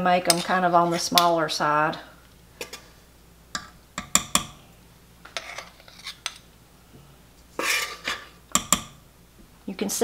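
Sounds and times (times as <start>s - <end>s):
metal spoons clinking on a steel bowl: 0.3s - 1.3s.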